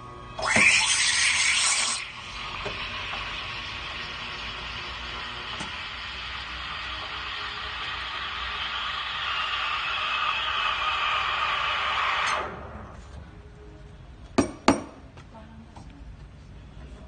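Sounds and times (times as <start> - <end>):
steam wand hissing: 5.8 - 12.5.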